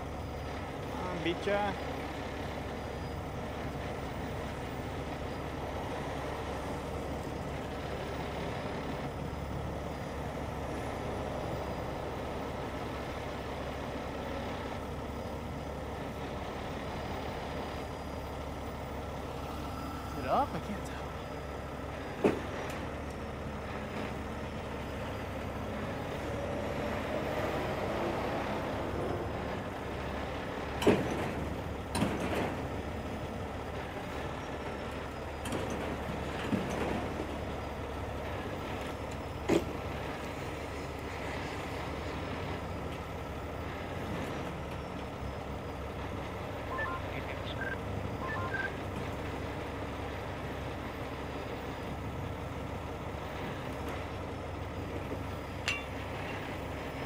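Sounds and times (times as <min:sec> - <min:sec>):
diesel engine running under load: 0:00.0 - 0:57.0
metal bangs and creaks: 0:30.8 - 0:32.8
reversing beeps: 0:46.6 - 0:48.8.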